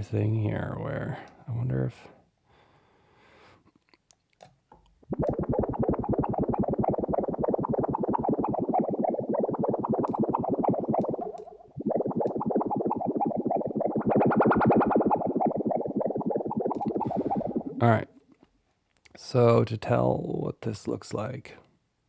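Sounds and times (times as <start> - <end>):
synthesized bubbly fluttering pulse: 5.0 - 17.9.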